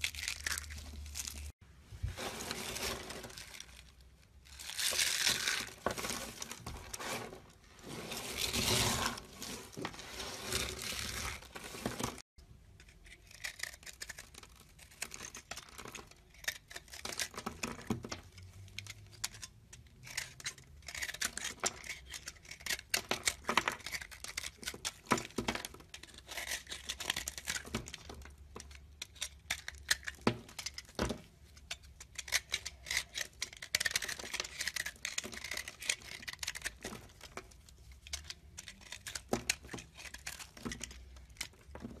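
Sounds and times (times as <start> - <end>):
soap crumbling crackles and snaps: 0.0 - 1.6, 12.1 - 42.0.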